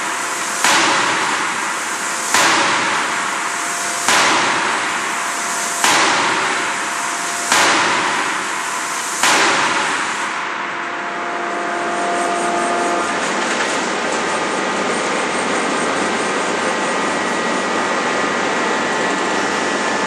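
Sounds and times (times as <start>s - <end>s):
forging hammer banging on metal: 0.6s - 1.3s, 2.3s - 2.9s, 4.1s - 4.6s, 5.8s - 6.6s, 7.5s - 8.5s, 9.2s - 10.1s
faint machine tone: 10.5s - 20.0s.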